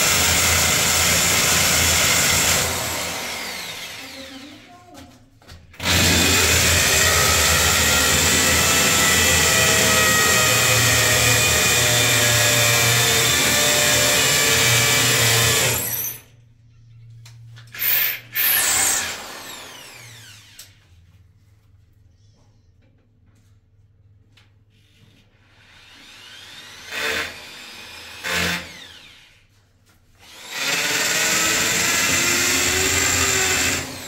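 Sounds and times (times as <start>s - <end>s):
electric drill boring into tile: 0.0s - 4.6s, 5.8s - 16.2s, 17.8s - 20.8s, 25.6s - 29.4s, 30.2s - 34.0s.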